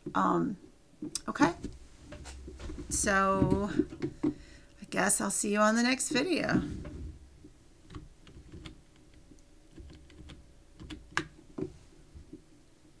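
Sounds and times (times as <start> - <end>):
computer keys clicking: 7.9 - 11.4.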